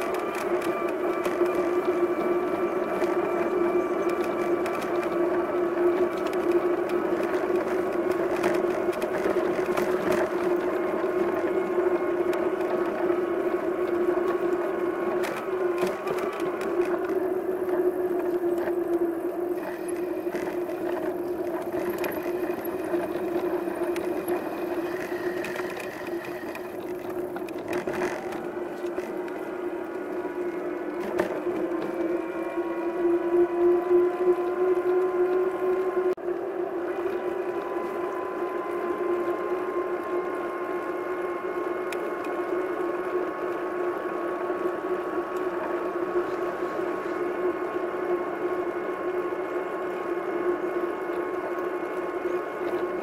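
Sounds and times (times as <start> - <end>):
ride mechanical whine: 0.0 - 53.0.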